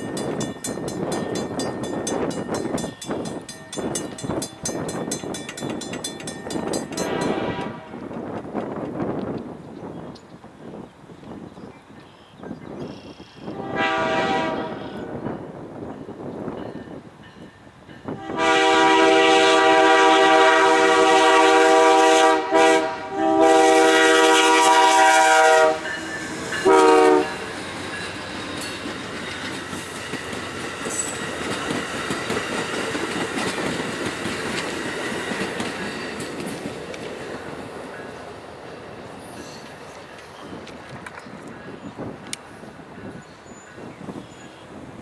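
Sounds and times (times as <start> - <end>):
train wheels clacking on rail: 0.0 - 9.5, 23.4 - 41.6
locomotive horn blasts: 7.0 - 8.1, 13.5 - 15.2, 18.1 - 27.5.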